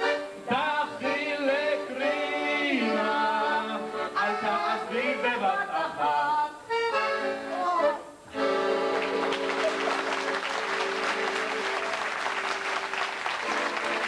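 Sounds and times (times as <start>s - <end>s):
instrumental held chords: 0.0s - 12.5s
man singing into microphone: 0.4s - 6.8s.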